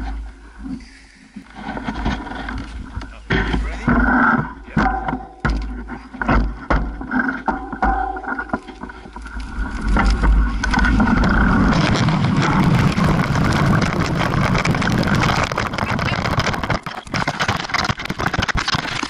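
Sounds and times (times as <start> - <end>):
tyre and frame rattle: 1.5 - 19.0
bike clicks and knocks: 4.7 - 19.0
wind rush on microphone: 9.6 - 19.0.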